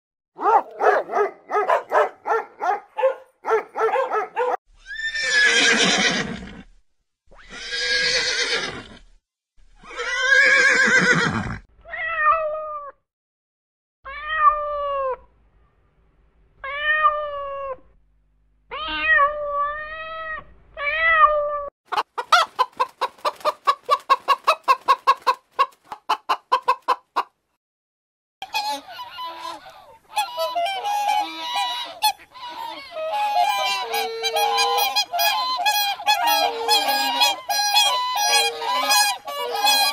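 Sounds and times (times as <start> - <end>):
long harsh animal cries: 4.8 - 6.4, 7.4 - 8.8, 9.8 - 12.5, 28.6 - 39.9
cat meowing: 18.7 - 21.7
clucking calls: 21.9 - 27.4, 28.4 - 39.9.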